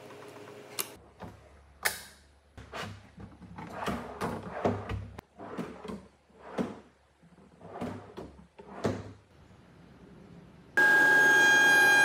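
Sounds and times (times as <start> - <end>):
drawers rolling on metal slides: 2.7 - 9.3
router high whine: 10.8 - 12.0.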